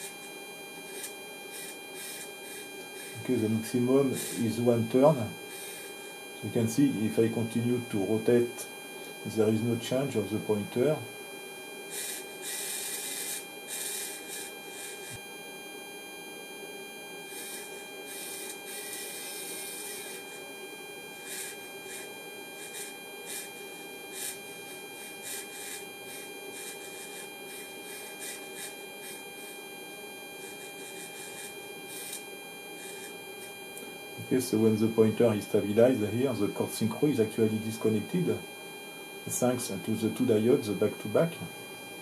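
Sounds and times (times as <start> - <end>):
servo motor whirring: 0.0 - 6.7, 11.9 - 15.3, 17.2 - 20.4, 21.1 - 38.1
steady electrical hum: 0.0 - 42.0.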